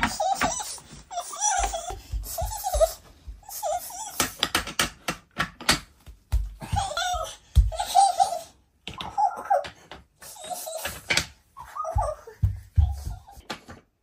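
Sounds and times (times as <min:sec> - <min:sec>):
toddler squealing or giggling: 0:00.1 - 0:04.2, 0:11.6 - 0:13.2
wooden toy track clicks and knocks: 0:04.0 - 0:05.9, 0:08.8 - 0:11.4.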